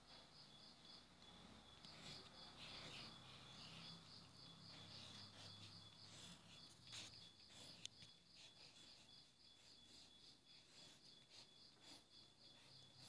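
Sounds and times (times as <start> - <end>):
faint high-pitched chirping: 0.0 - 13.0
pencil scratching on paper: 1.2 - 13.0.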